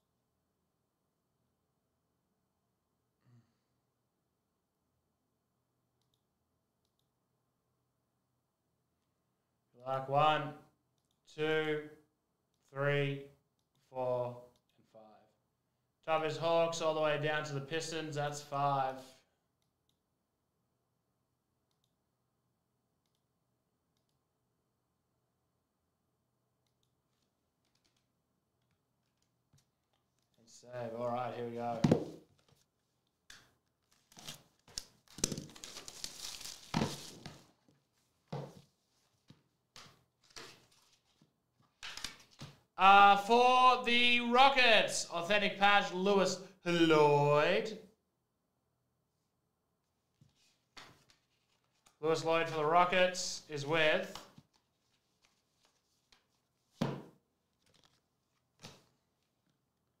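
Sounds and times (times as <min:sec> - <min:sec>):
plastic wrap tearing and crinkling: 0:33.8 - 0:37.3
cardboard packaging handling: 0:33.8 - 0:37.8, 0:57.5 - 0:58.7.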